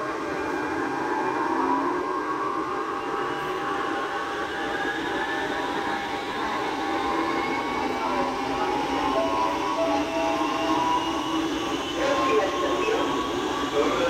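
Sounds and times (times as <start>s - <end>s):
train rolling rumble and hiss: 0.0s - 14.0s
train motor whine: 4.2s - 14.0s.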